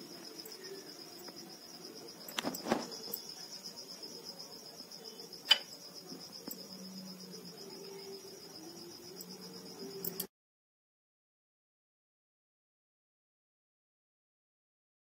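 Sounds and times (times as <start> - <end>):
cricket trilling: 0.0 - 10.3
sharp click: 5.5 - 5.7.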